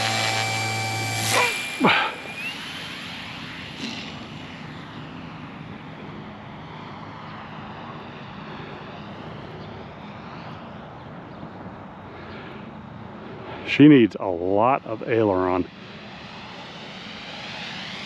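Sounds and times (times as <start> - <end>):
model plane propeller drone: 0.0 - 18.0.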